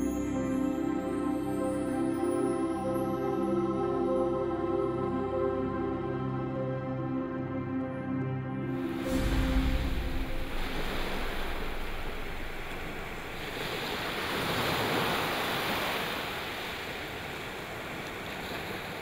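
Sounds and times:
surf washing onto beach: 0:08.8 - 0:19.0.

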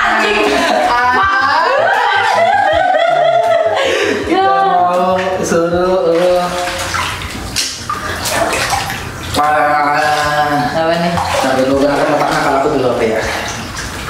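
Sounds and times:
people laughing: 0:00.0 - 0:04.7
bathwater sloshing and splashing: 0:00.0 - 0:14.0.

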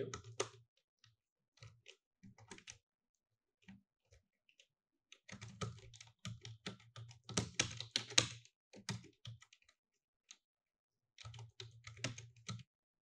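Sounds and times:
computer keyboard typing: 0:00.1 - 0:00.6, 0:05.2 - 0:09.7, 0:11.2 - 0:12.7.

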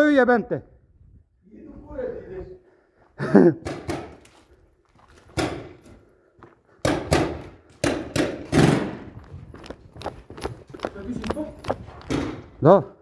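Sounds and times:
paintball markers firing: 0:03.6 - 0:04.3.

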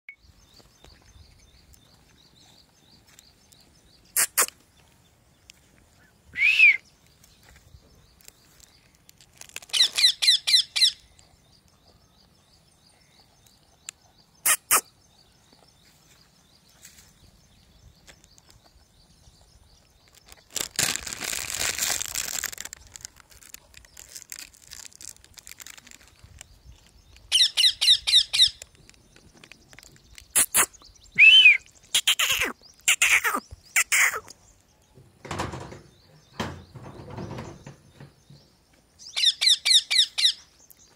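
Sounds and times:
sharp clicks: 0:28.5 - 0:30.8
parakeet screeching: 0:32.0 - 0:34.2.

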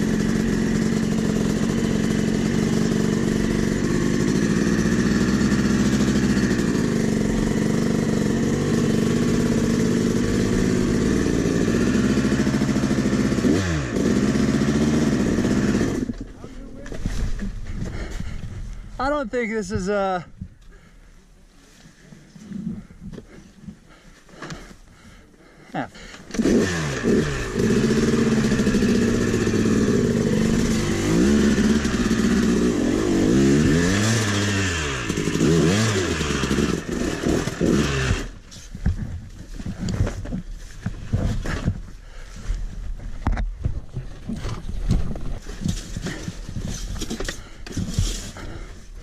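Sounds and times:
dirt bike engine revving: 0:00.0 - 0:16.3, 0:26.3 - 0:38.4
scrapes and clatter in sand: 0:38.1 - 0:49.0.

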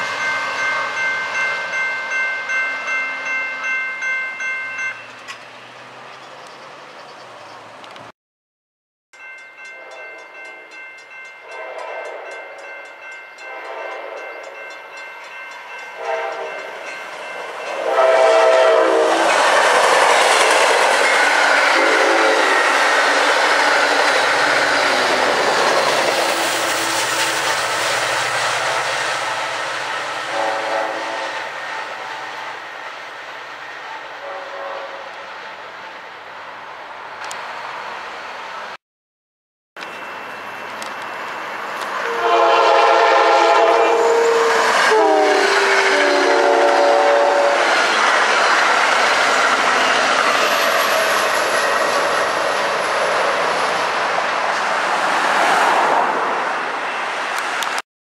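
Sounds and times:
crossing bell ringing: 0:00.0 - 0:06.8, 0:09.2 - 0:19.1, 0:19.7 - 0:27.8, 0:39.8 - 0:50.1
train wheels rushing on rails: 0:09.9 - 0:35.8, 0:39.8 - 0:57.8
locomotive horn blasts: 0:11.4 - 0:12.6, 0:13.4 - 0:14.5, 0:16.0 - 0:16.8, 0:17.6 - 0:19.3, 0:21.7 - 0:22.8, 0:30.3 - 0:32.2, 0:34.2 - 0:35.1, 0:42.0 - 0:47.7.

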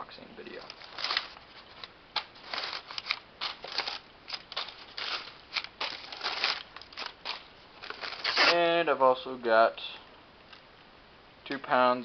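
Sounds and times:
packing paper rustling and crackling: 0:00.4 - 0:08.6.

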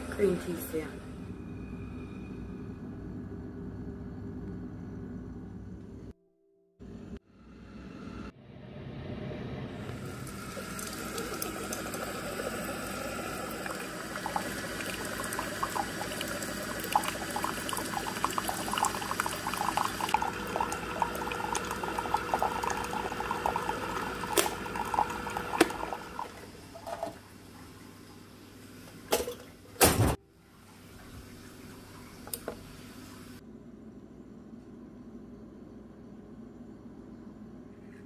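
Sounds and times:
machine pouring hot water: 0:09.8 - 0:28.0.

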